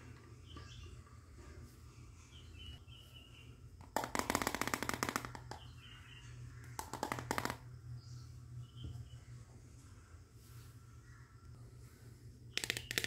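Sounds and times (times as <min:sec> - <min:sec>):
plastic toy pan clicking and rattling: 0:12.6 - 0:13.0.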